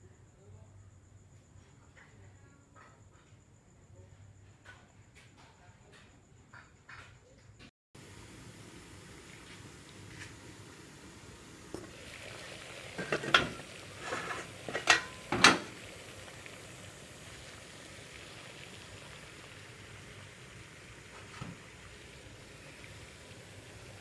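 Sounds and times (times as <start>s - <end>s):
boiling water hiss: 8.0s - 24.0s
pot lid clanking: 13.0s - 15.8s.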